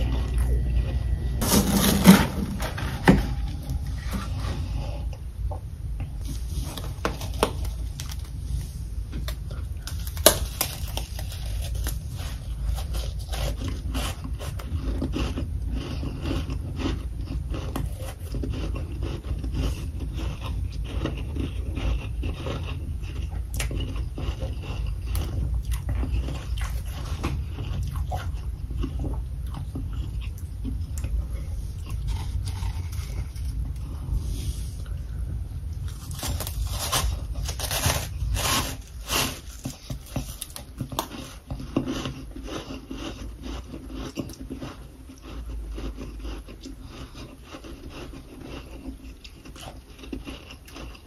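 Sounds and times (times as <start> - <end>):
frost crunching when chewed: 0.0 - 5.2, 6.2 - 34.2, 35.7 - 51.0
steady low rumble: 0.0 - 40.8.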